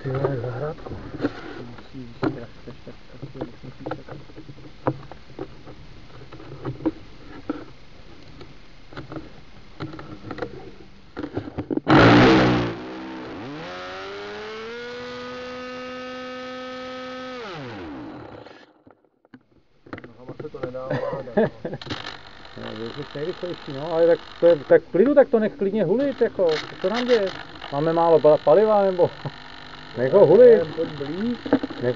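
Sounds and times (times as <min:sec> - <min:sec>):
small engine buzzing: 0:11.9 - 0:18.8, 0:21.4 - 0:25.0, 0:25.8 - 0:31.9.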